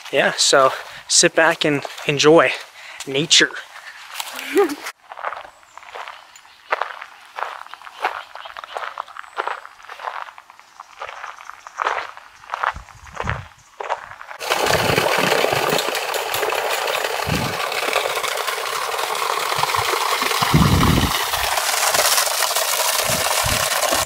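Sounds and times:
water pouring onto rocks: 0:14.4 - 0:24.0.

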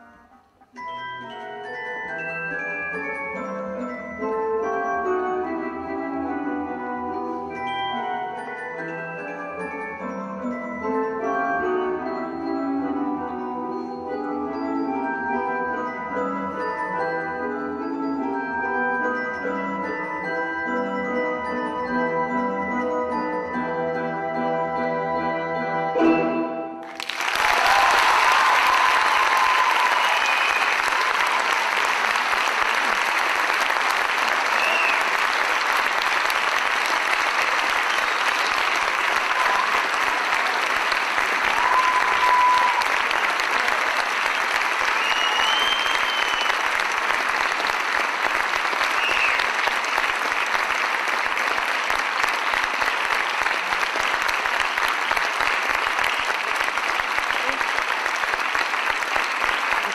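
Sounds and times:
audience applause: 0:26.8 - 0:59.9
brief cries from audience: 0:41.5 - 0:43.2.

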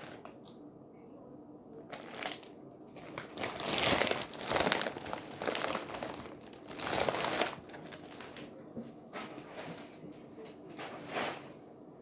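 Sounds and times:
candy wrappers crinkling: 0:01.9 - 0:08.5.

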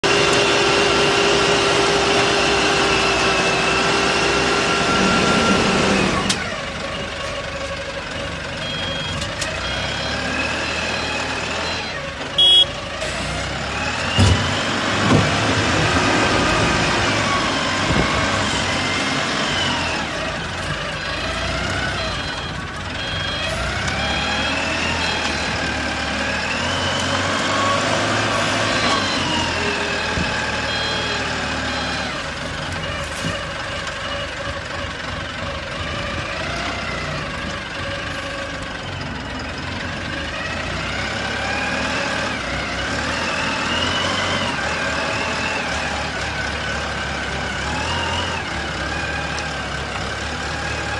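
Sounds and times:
truck engine revving: 0:00.0 - 0:50.9
reversing alarm beeps: 0:08.6 - 0:12.8, 0:21.9 - 0:25.8, 0:28.6 - 0:32.1.

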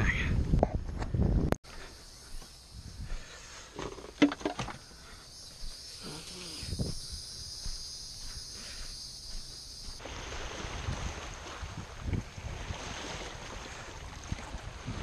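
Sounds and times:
high insect buzzing: 0:04.8 - 0:10.0.

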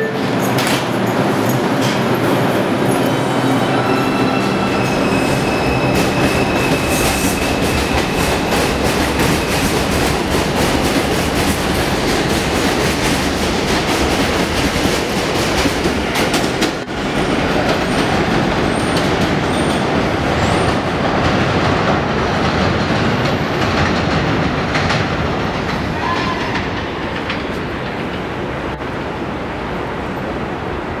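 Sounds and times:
train wheels clattering over rails: 0:04.8 - 0:28.4.

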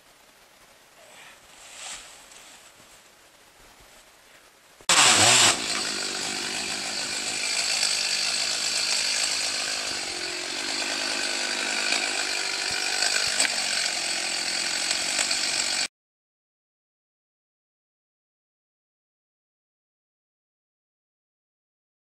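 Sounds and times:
chainsaw running: 0:04.9 - 0:15.9.

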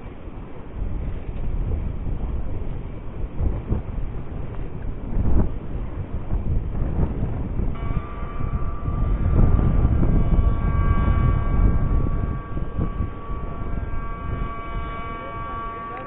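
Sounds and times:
wind buffeting microphone: 0:00.0 - 0:16.0
high-pitched hum: 0:04.5 - 0:16.0.

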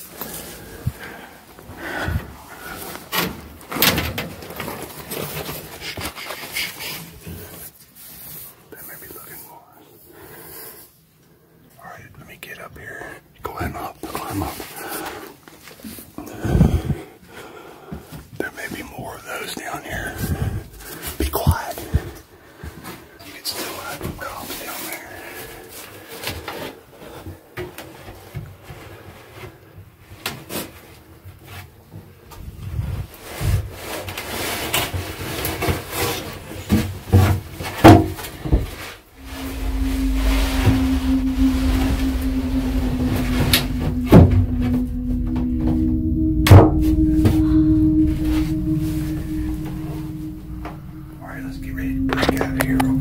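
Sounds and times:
low hum: 0:39.1 - 0:53.0.

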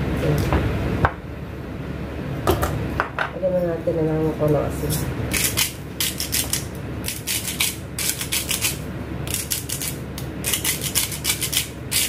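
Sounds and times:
salt grinder grinding: 0:05.3 - 0:12.0.

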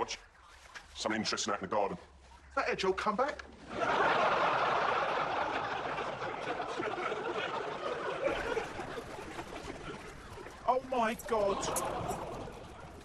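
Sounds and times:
studio audience laughing: 0:03.6 - 0:10.4, 0:11.3 - 0:13.0.

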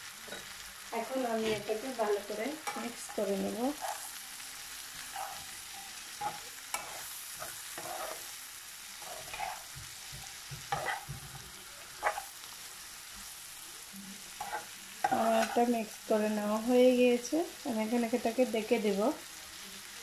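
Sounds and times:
vegetables sizzling in oil: 0:00.0 - 0:20.0
spatula scraping and knocking pan: 0:05.0 - 0:08.4, 0:09.0 - 0:12.4, 0:14.4 - 0:15.7.

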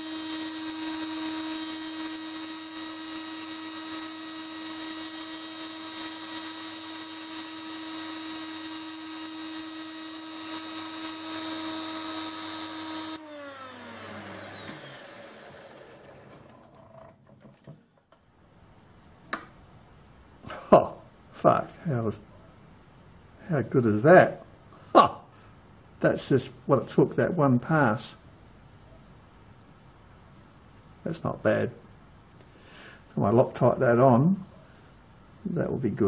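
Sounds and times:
high motor whine: 0:00.0 - 0:16.7.

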